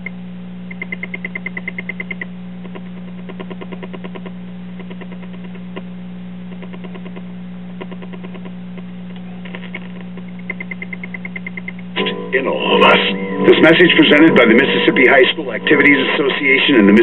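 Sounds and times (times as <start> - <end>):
rapid chirping ticks: 0.0 - 5.9, 6.5 - 11.9
radio speaker low hum: 0.0 - 17.0.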